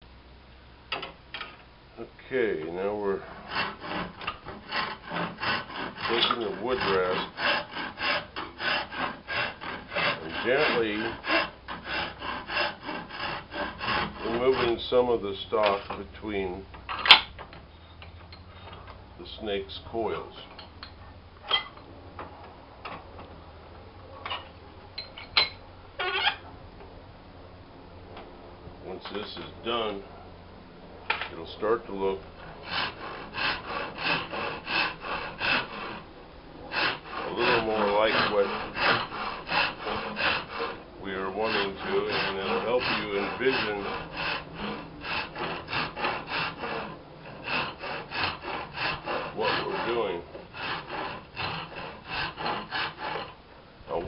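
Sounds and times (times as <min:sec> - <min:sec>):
wood rasp scraping: 0:02.7 - 0:16.1, 0:31.3 - 0:53.4.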